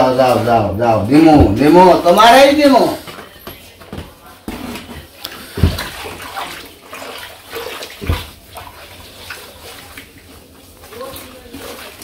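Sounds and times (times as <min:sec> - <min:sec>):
water sloshing in a trough: 0:04.6 - 0:12.0.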